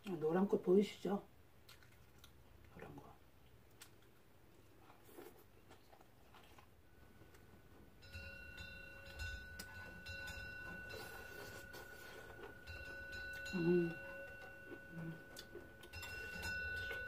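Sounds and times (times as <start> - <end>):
faint chewing: 1.6 - 7.9, 8.5 - 17.0
faint high tone: 13.3 - 17.0.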